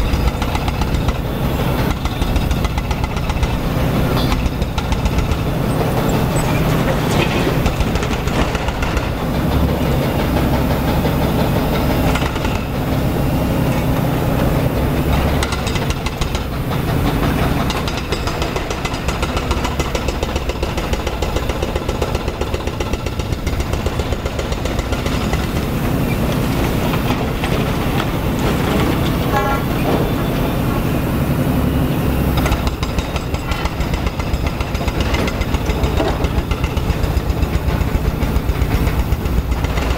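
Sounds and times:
excavator diesel engine running: 0.0 - 39.9
machinery clattering and knocking: 0.0 - 39.9.

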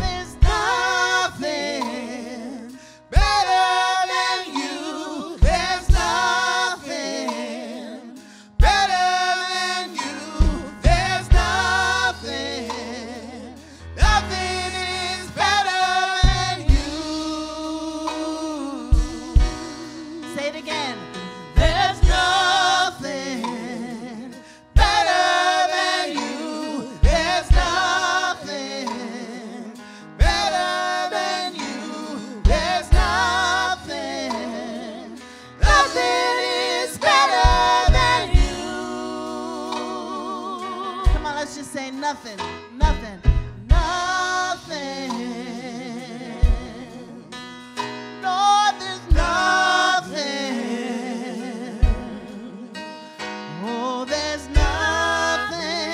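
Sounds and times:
kick drum beat: 0.0 - 0.8, 5.4 - 6.3, 10.4 - 11.9, 16.2 - 17.1, 18.9 - 19.7, 21.6 - 22.5, 24.8 - 25.0, 27.0 - 28.0, 30.2 - 30.5, 32.5 - 33.4, 35.6 - 36.0, 37.4 - 38.8, 41.1 - 41.4, 42.8 - 44.1, 49.1 - 49.4, 51.8 - 52.2, 54.6 - 55.0
man and woman singing: 0.0 - 47.4, 48.2 - 52.9, 53.5 - 55.9
keyboard: 0.0 - 55.9.

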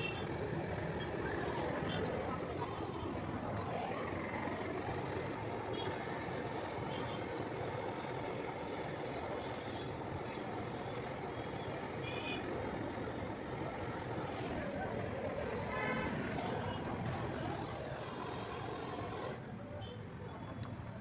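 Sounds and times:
torch flame roaring: 12.8 - 19.4.

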